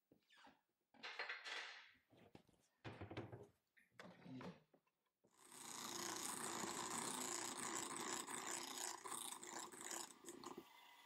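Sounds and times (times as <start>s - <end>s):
electric hand mixer whirring: 5.4s - 11.0s.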